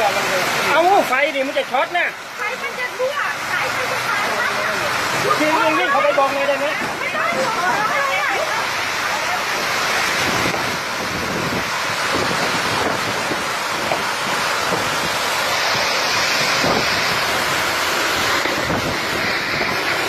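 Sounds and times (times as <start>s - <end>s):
heavy driving rain: 0.0s - 20.0s
violent windstorm: 6.7s - 20.0s
wind buffeting microphone: 6.7s - 20.0s.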